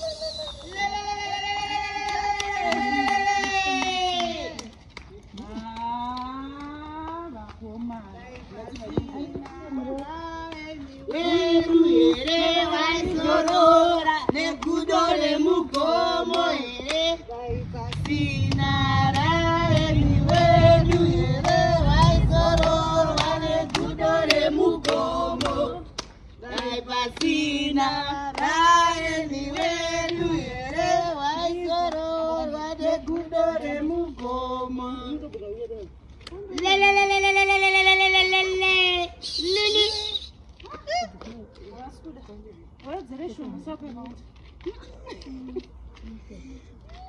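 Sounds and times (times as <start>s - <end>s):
women singing together: 0.5s - 4.7s, 5.4s - 35.6s.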